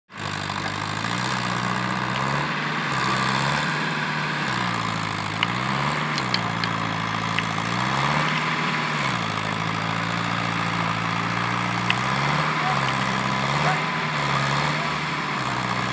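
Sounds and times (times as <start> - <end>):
tractor diesel engine revving: 0.1 - 15.9.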